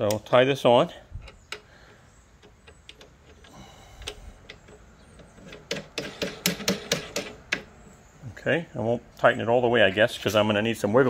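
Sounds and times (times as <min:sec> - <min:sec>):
sharp clicks: 0:00.0 - 0:00.3, 0:02.3 - 0:07.7.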